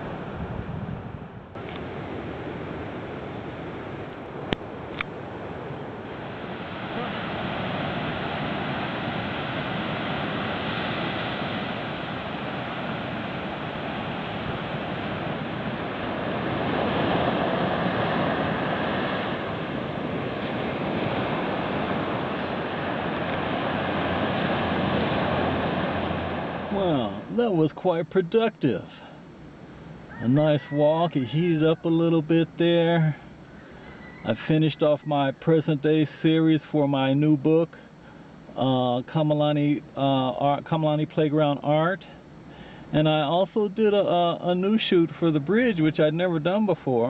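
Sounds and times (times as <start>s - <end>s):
wind on microphone: 0.0s - 26.8s
ocean surf breaking on sand: 0.0s - 33.3s.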